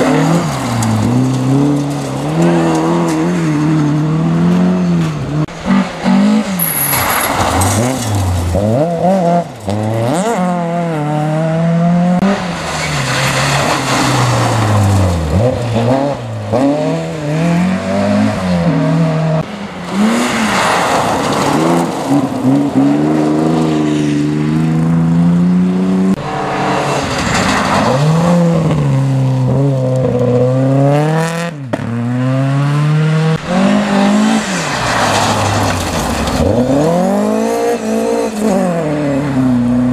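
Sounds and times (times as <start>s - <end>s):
tyres on loose gravel: 0.0s - 3.7s, 5.8s - 10.2s, 12.3s - 17.6s, 19.6s - 24.2s, 26.3s - 30.2s, 33.4s - 38.5s
rally car engine revving: 0.0s - 39.9s.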